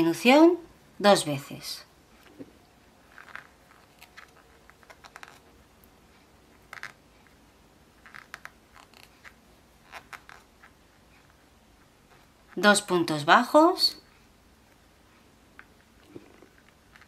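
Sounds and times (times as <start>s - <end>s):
crochet hook scratching yarn: 2.1s - 13.3s, 15.6s - 17.0s.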